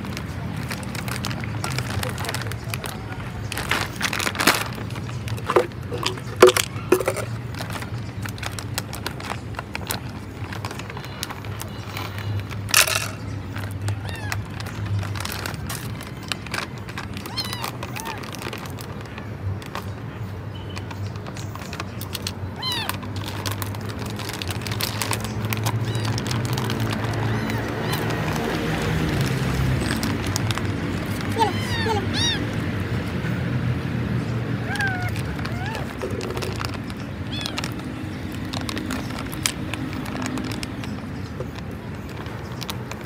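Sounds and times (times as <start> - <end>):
plastic bag rustling: 0.0 - 20.0, 20.7 - 33.2, 34.6 - 43.0
cat meowing: 13.9 - 14.4, 17.2 - 18.3, 22.6 - 23.0, 25.8 - 28.8, 31.3 - 32.6, 34.6 - 36.3, 37.2 - 37.9.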